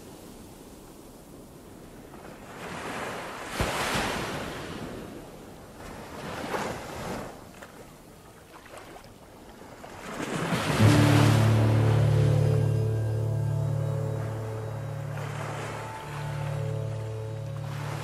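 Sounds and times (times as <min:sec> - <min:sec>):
waves crashing on rocks: 0:02.4 - 0:05.2, 0:10.0 - 0:12.0.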